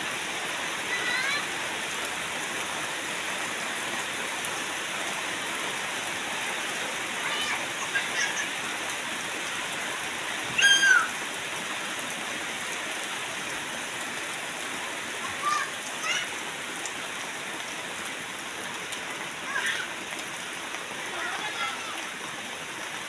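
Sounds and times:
steady rain falling: 0.0 - 23.0
high-pitched cries: 10.5 - 11.2.

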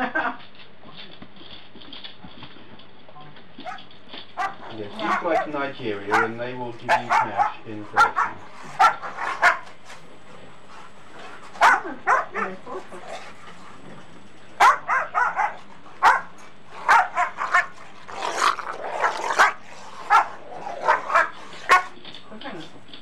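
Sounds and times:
dog barking: 3.6 - 9.7, 11.6 - 12.7, 14.6 - 17.8, 19.0 - 22.0.

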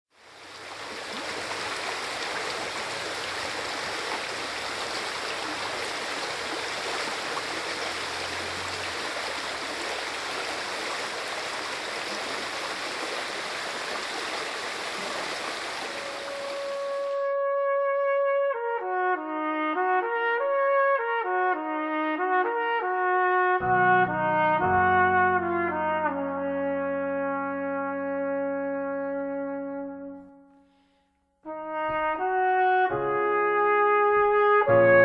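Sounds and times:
stream running over stones: 0.1 - 17.2.

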